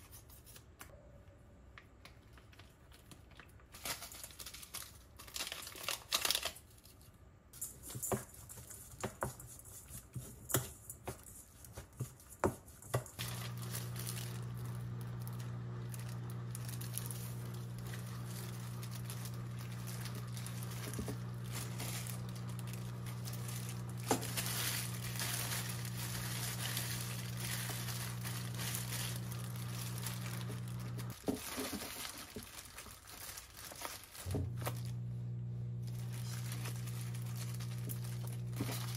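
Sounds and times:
plastic packet crinkling: 2.1 - 7.1, 13.2 - 38.9
steady low hum: 13.2 - 31.2, 34.3 - 38.9
plastic gloves handling food: 13.2 - 38.9.

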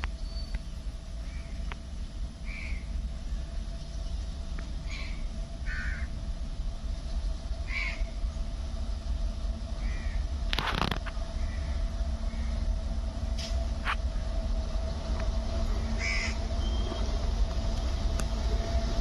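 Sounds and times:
low steady rumble: 0.0 - 19.0
crow cawing: 2.5 - 2.8, 4.9 - 6.1, 7.7 - 8.1, 9.8 - 10.2, 11.4 - 12.5, 16.0 - 16.4.

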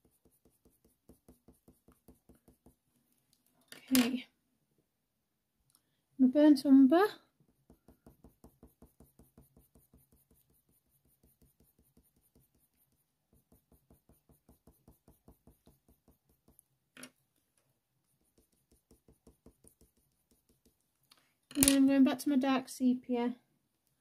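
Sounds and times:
pencil scratching on paper: 0.0 - 2.8, 7.5 - 16.7, 18.0 - 20.9.

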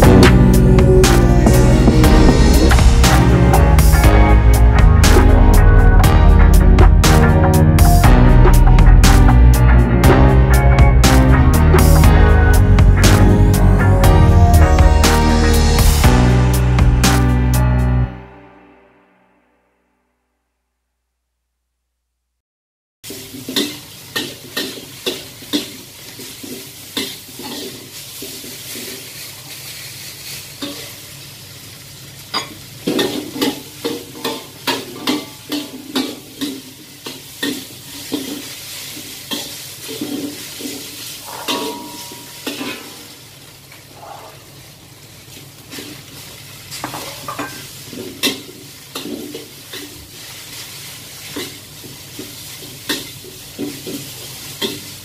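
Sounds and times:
noodles sizzling in oil: 23.0 - 55.0
metal spatula scraping a wok: 23.6 - 31.0, 32.9 - 43.1, 44.0 - 44.5.

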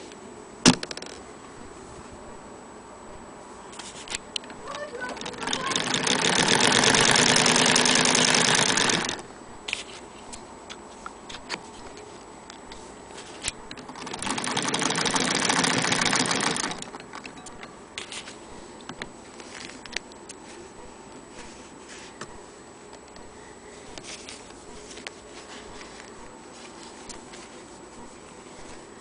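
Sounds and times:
sewing machine stitching: 4.8 - 9.2, 13.7 - 17.3.

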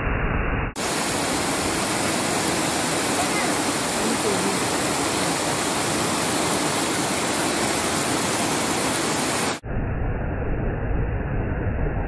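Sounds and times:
waterfall rushing: 0.8 - 9.6.

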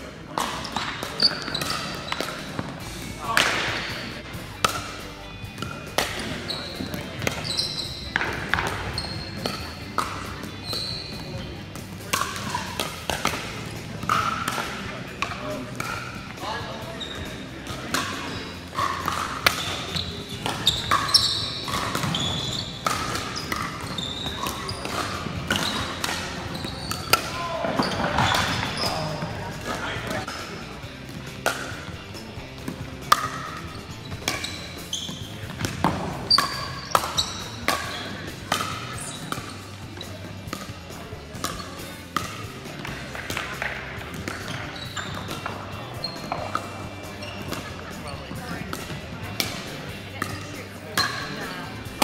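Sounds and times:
faint voices: 0.0 - 52.0
sneakers squeaking on hardwood: 0.6 - 3.1, 5.6 - 11.5, 15.8 - 31.2, 31.8 - 40.7, 43.6 - 48.8
paddles hitting plastic ball: 4.6 - 7.4, 11.7 - 16.4, 17.6 - 39.6, 40.5 - 40.7, 41.4 - 46.8, 47.4 - 47.8, 48.6 - 50.4.

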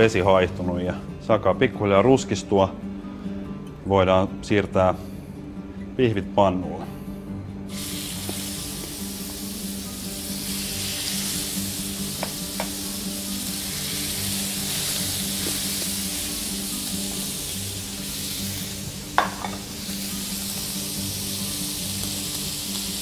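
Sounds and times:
steaks sizzling in a hot pan: 7.7 - 23.0.

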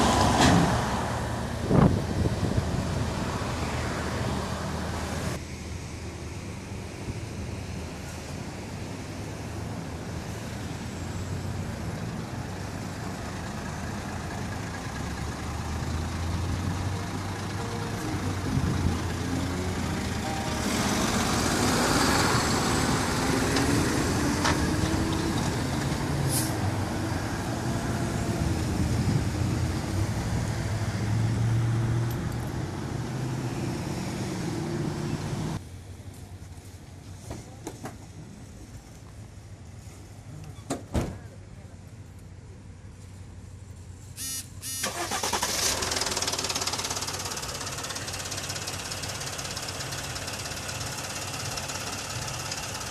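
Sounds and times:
diesel truck accelerating past: 0.0 - 5.4, 9.8 - 35.6, 44.9 - 52.9
background traffic noise: 0.0 - 52.9
tyre and road noise: 0.0 - 52.9.

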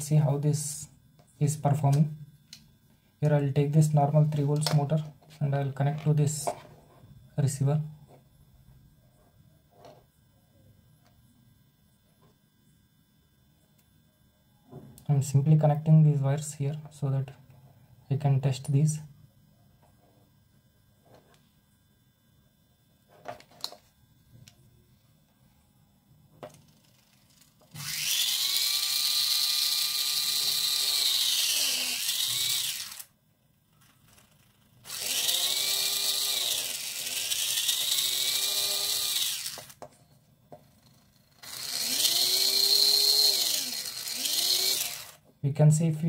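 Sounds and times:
small motor whirring: 26.5 - 39.8, 40.6 - 45.3.

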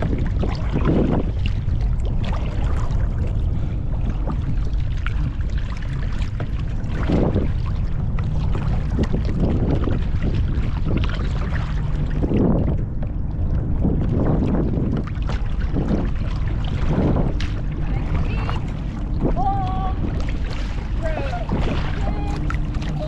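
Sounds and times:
paddle strokes splashing water: 0.0 - 23.0
wind buffeting microphone: 0.0 - 23.0.

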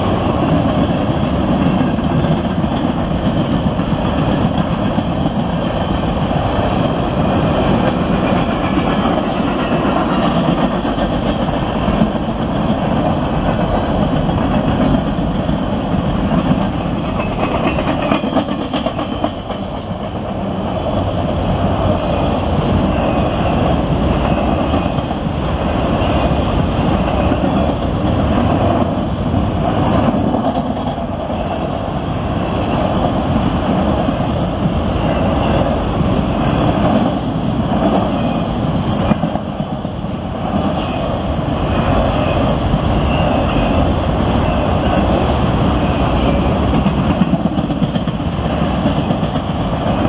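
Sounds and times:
train wheels rumbling on rails: 0.0 - 50.0
wheels clacking over rail joints: 0.4 - 29.0.

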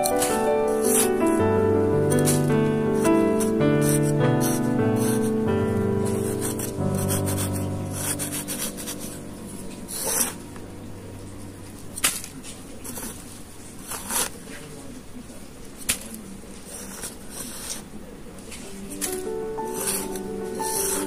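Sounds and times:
metal spoon scraping sand: 0.0 - 1.4, 19.2 - 21.0.

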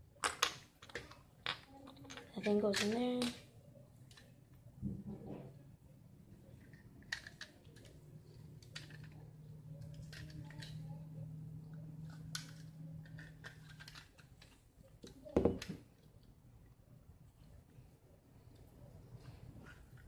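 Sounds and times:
plastic toy parts clicking: 0.2 - 3.4, 6.6 - 11.0, 12.0 - 16.2.

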